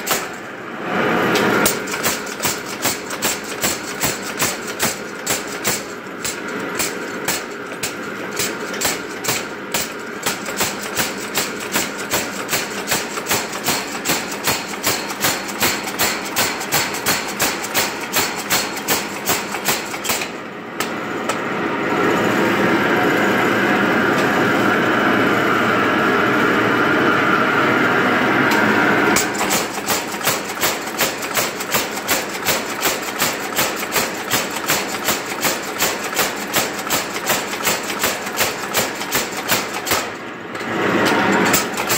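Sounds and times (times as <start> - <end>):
power hammer striking steel: 0.0 - 0.4, 1.6 - 21.4, 29.2 - 41.9
steady loud machine noise: 0.0 - 41.9.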